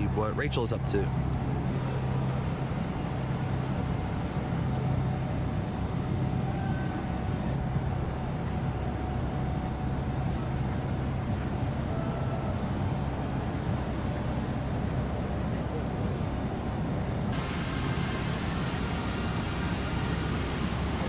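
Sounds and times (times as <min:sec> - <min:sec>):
ship machinery hum: 0:00.0 - 0:21.0
background rush: 0:16.3 - 0:21.0.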